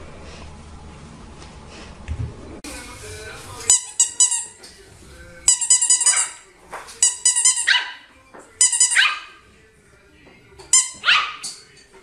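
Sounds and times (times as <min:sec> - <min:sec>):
squeaky toy ball: 0:05.5 - 0:06.4, 0:07.0 - 0:07.9, 0:08.6 - 0:09.2, 0:10.7 - 0:11.5
puppy yipping: 0:07.4 - 0:08.1, 0:08.8 - 0:09.4, 0:10.8 - 0:11.5.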